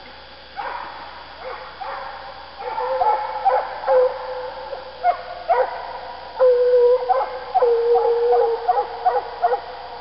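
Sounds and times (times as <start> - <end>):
hounds baying: 1.4 - 4.3, 5.0 - 9.7.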